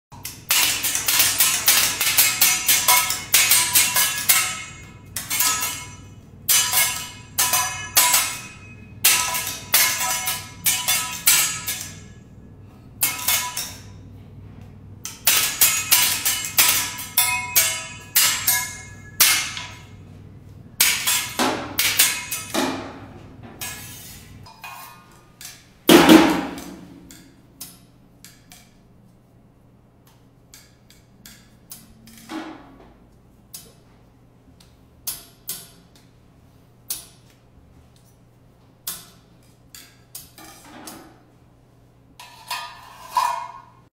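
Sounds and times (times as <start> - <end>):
metal spatulas clattering: 0.2 - 12.2, 13.0 - 14.0, 15.0 - 20.0, 20.8 - 28.8, 30.5 - 32.8, 38.8 - 41.3, 42.2 - 43.9
metal clang ringing: 0.2 - 12.3, 15.1 - 20.0.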